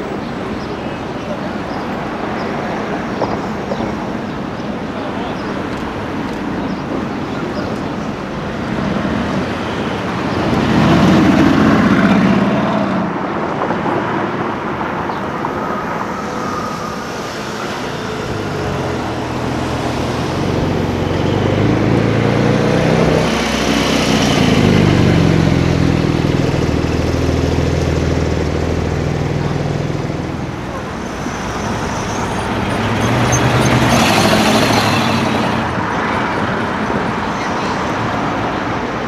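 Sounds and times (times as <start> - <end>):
street traffic: 0.0 - 39.0
sports car passing: 8.0 - 37.2
sports car engine pulling away: 18.3 - 30.4.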